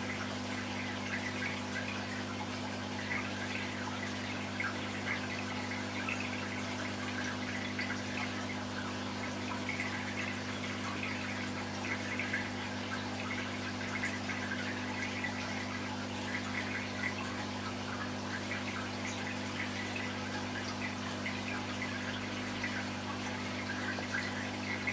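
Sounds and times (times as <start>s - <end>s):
aquarium equipment humming: 0.0s - 24.9s
water trickling and bubbling: 0.0s - 24.9s.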